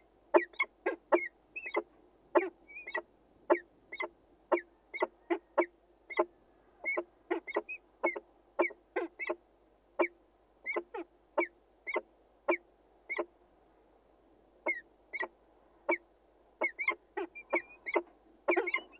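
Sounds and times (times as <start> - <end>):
falcon calling sharp notes: 16.6 - 18.9.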